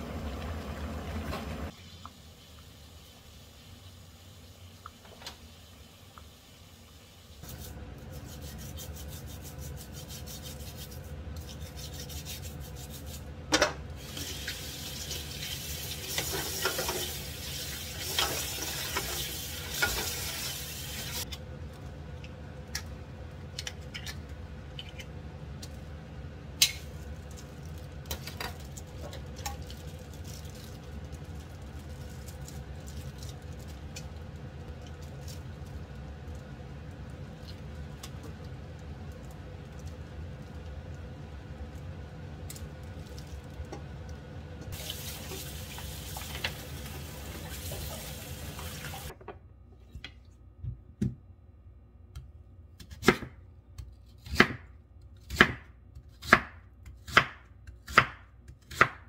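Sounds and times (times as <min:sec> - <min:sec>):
brush scrubbing shell: 0:07.4 - 0:13.3.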